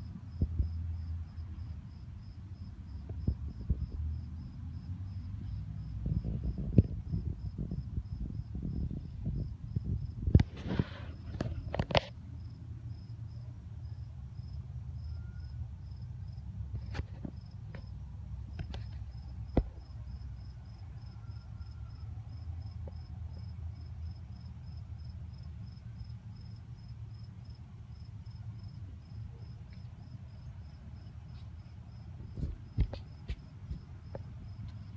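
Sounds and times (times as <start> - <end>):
cricket chirping: 0.0 - 34.9
low background rumble: 0.0 - 34.9.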